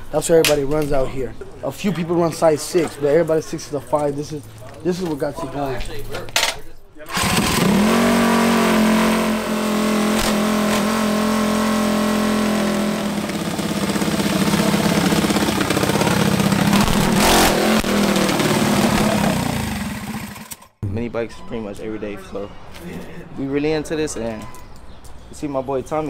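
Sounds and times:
minibike engine running: 7.1s - 20.7s.

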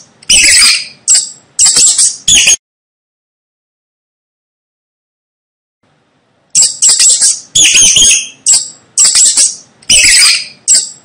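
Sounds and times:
mice squeaking: 0.0s - 2.6s, 6.6s - 11.0s.

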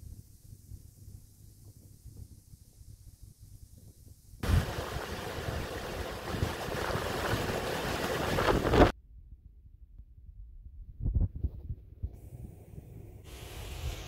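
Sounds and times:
wind on microphone: 3.8s - 9.0s, 10.8s - 12.4s
fast-flowing floodwater rushing: 4.4s - 8.9s.

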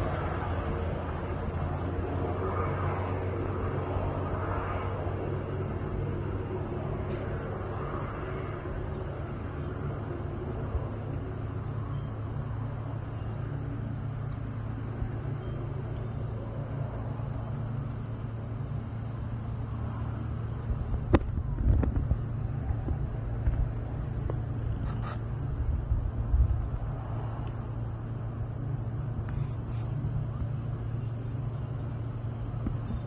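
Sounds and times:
distant aircraft engine drone: 0.0s - 33.0s.

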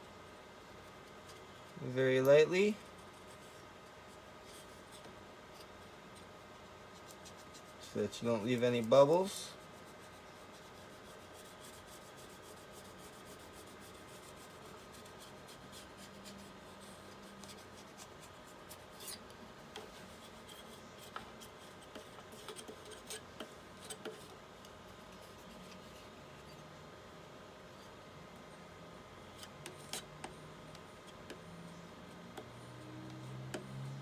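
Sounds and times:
faint steady hum: 0.0s - 34.0s
rubbing film on touchscreen: 0.7s - 26.6s.

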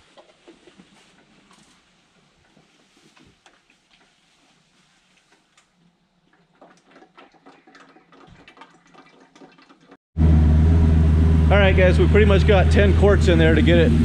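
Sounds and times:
oil glugging into funnel: 0.2s - 10.0s
car engine idling: 10.2s - 14.0s.

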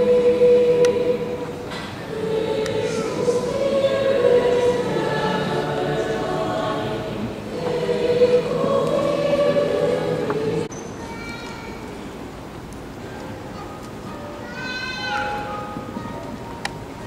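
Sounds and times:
children's choir singing: 0.0s - 10.7s.

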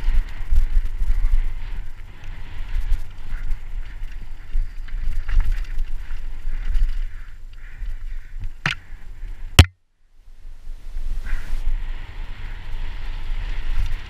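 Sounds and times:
bike tyres on dirt trail: 0.0s - 9.6s, 10.4s - 14.0s
wind on microphone: 0.0s - 9.6s, 10.2s - 14.0s
bike rattling over bumps: 0.0s - 9.7s.

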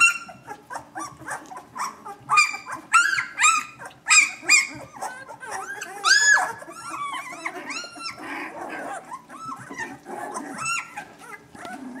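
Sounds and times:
puppies whining and squealing: 0.0s - 12.0s.

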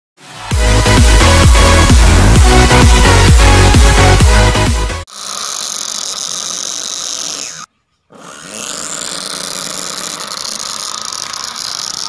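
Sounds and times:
small motor whining: 5.0s - 12.0s.

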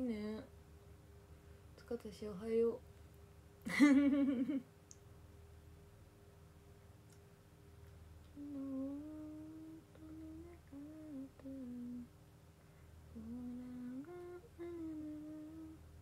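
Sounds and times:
woman humming: 8.3s - 12.1s, 13.1s - 15.9s.

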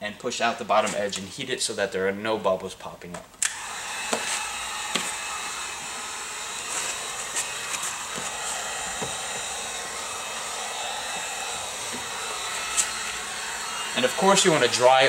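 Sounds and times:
heat gun blowing: 3.4s - 15.0s.

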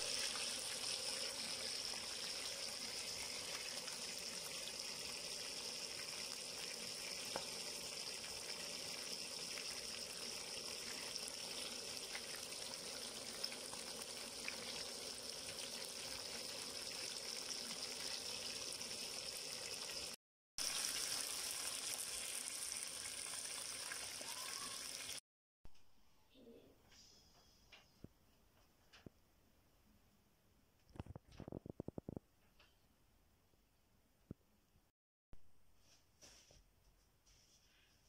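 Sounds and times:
fish sizzling in hot oil: 0.0s - 25.2s
small crackles of frying oil: 0.0s - 25.2s.

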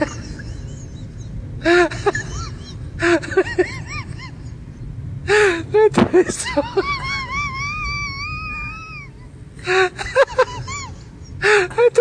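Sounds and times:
low background hum: 0.0s - 12.0s
young child crying: 7.1s - 9.2s.

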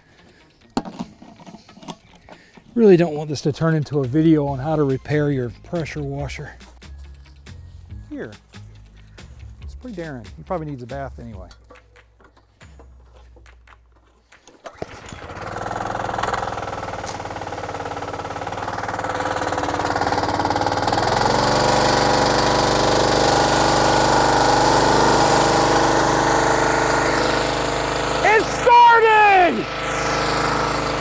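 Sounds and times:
small gasoline engine running: 14.6s - 31.0s
pressure washer spraying: 14.8s - 28.6s, 29.6s - 31.0s.

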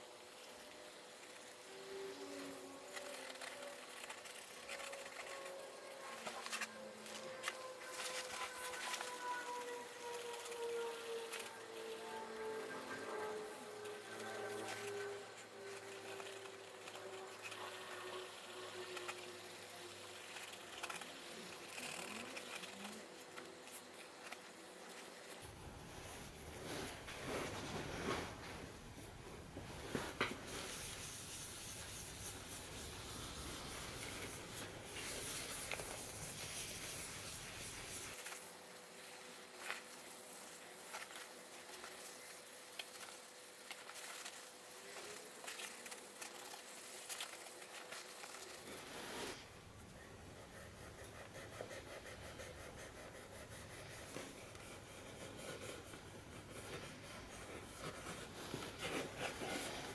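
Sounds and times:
cloth wiping leather: 29.9s - 38.3s.

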